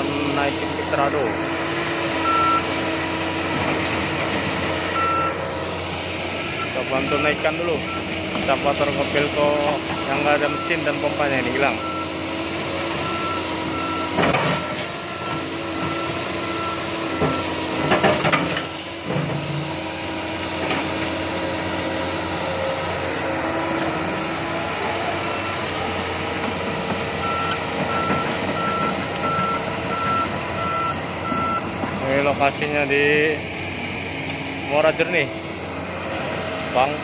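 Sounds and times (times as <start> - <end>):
excavator diesel engine running: 0.0 - 37.0
alarm beeping: 2.2 - 2.8, 4.9 - 5.4, 6.4 - 8.1, 9.9 - 12.2, 27.2 - 31.7.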